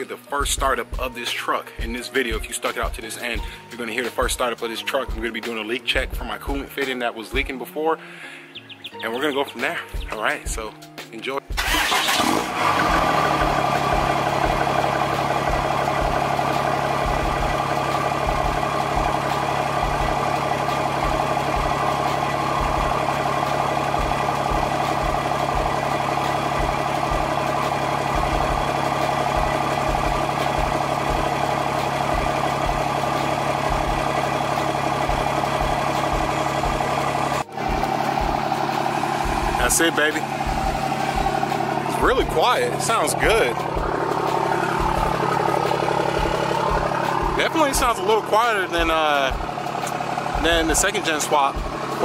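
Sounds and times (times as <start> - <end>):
diesel engine idling: 3.2 - 3.7, 11.6 - 52.0.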